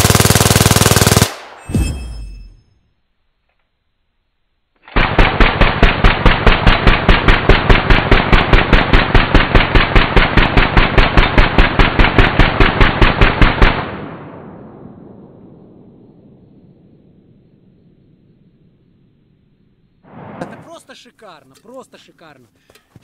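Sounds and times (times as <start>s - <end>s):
machine gun firing: 0.0s - 1.6s, 4.9s - 14.2s.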